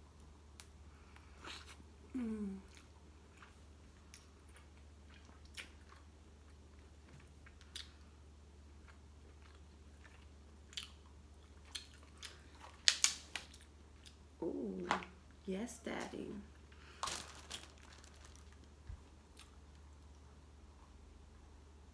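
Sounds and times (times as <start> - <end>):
crab shell cracking by hand: 12.7 - 13.6.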